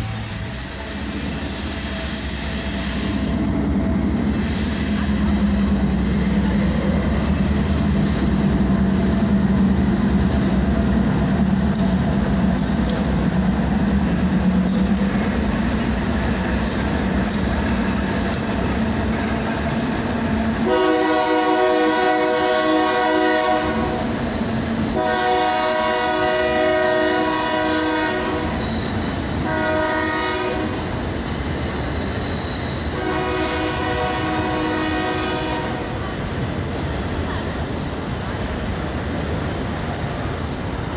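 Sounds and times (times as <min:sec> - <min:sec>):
freight train rumbling: 0:00.0 - 0:40.9
locomotive air horn blasts: 0:20.6 - 0:24.0, 0:24.9 - 0:28.6, 0:29.4 - 0:30.9, 0:32.7 - 0:36.0.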